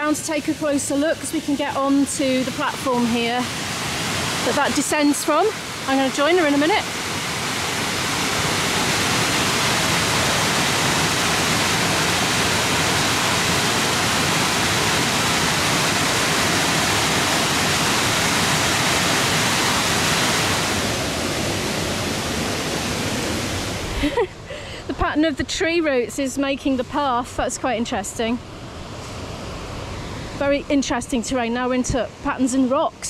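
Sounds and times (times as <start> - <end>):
waterfall rushing: 0.0 - 24.7.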